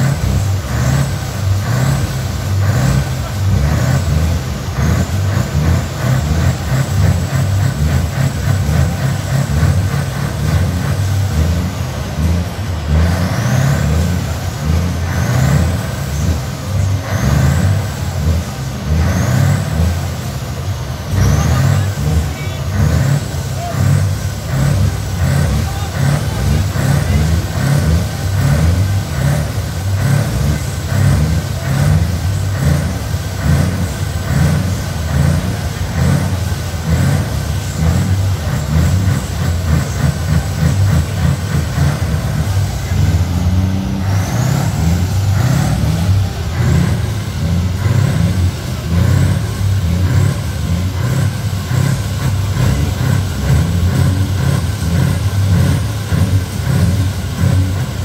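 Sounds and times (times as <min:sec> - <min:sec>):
truck engine running: 0:00.0 - 0:58.0.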